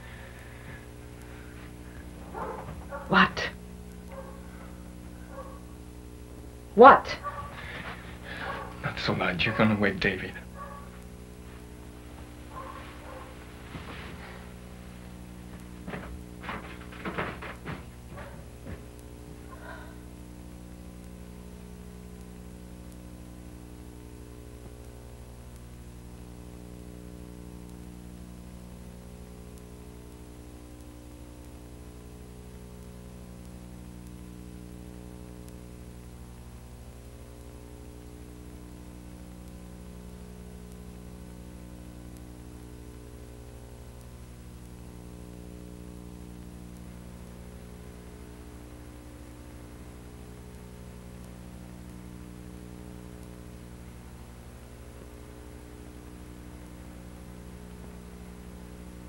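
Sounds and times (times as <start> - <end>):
low drone of held tones: 0.0 - 5.8.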